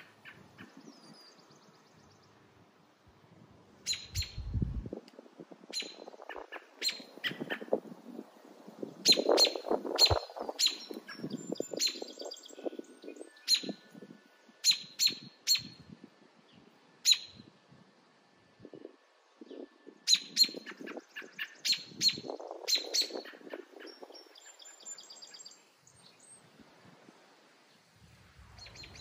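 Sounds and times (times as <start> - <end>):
bird alarm calls: 3.8 - 4.5, 5.7 - 7.8, 9.0 - 12.6, 13.4 - 13.8, 14.6 - 15.8, 17.0 - 17.4, 20.1 - 25.6.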